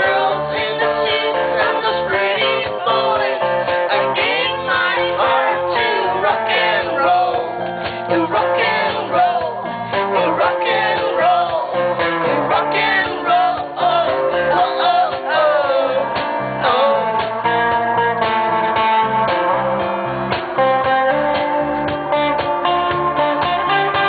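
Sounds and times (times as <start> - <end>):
woman singing: 0.0 - 6.6
electric guitar playing: 0.0 - 24.0.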